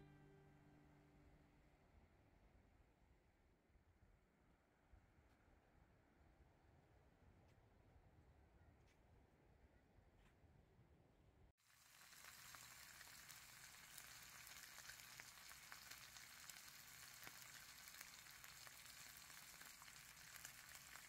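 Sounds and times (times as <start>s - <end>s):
fish sizzling in oil: 11.6s - 21.0s.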